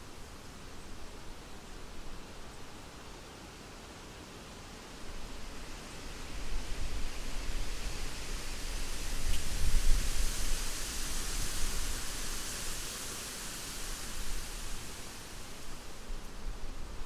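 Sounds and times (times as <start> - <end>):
rain hissing in forest: 0.0 - 17.0.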